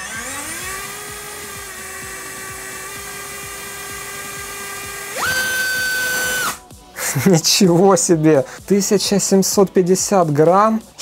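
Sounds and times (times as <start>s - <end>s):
electric motor propeller whine: 0.0s - 6.6s.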